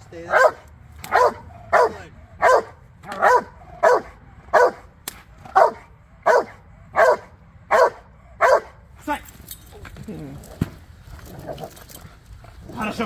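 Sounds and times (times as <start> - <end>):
dog barking: 0.3 - 4.9, 5.5 - 8.8.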